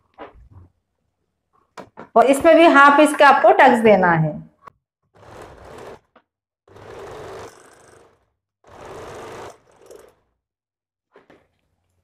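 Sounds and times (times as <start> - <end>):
electric sewing machine stitching: 5.1 - 10.4.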